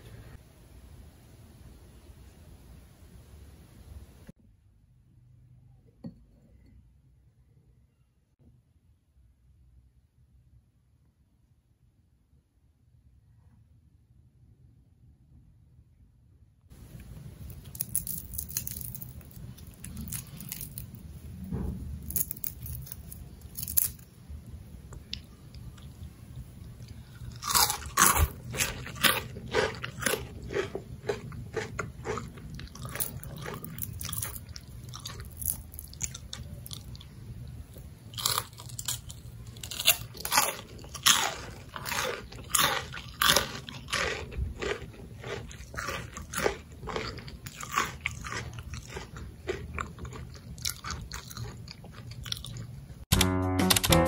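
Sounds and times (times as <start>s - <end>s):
crunching and chewing fried potato: 16.8s - 24.2s, 24.9s - 53.0s.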